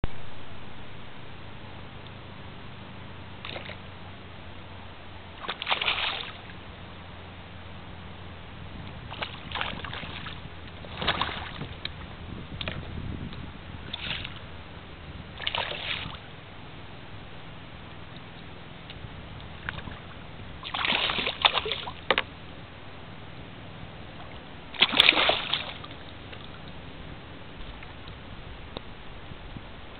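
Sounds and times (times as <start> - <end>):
steady background noise: 0.0 - 29.9
fish splashing in water: 3.4 - 3.8, 5.4 - 6.6, 9.1 - 11.9, 13.8 - 14.4, 15.3 - 16.3, 19.5 - 22.3, 24.2 - 26.8.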